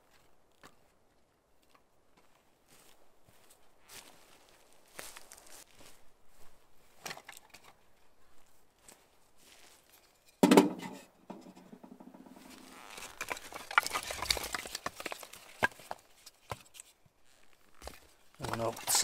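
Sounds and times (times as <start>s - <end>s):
metal stove clanging: 10.4s - 12.4s
firewood splintering apart: 12.5s - 16.0s.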